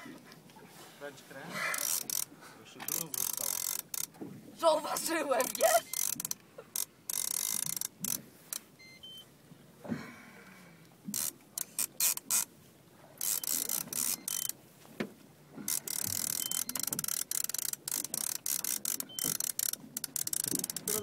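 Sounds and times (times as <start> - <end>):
fishing reel whirring and clicking: 1.7 - 2.3, 2.9 - 4.2, 5.4 - 8.6, 11.1 - 12.5, 13.2 - 14.6, 15.7 - 21.0.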